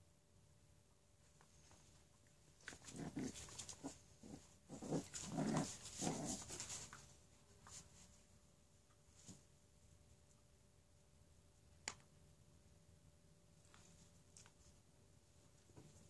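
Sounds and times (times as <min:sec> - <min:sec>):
dogs growling and yapping: 0:02.6 - 0:06.9.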